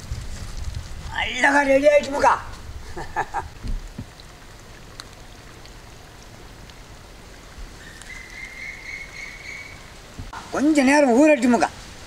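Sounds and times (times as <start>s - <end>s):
outdoor background hiss: 0.0s - 12.0s
faint ticks: 3.6s - 6.9s.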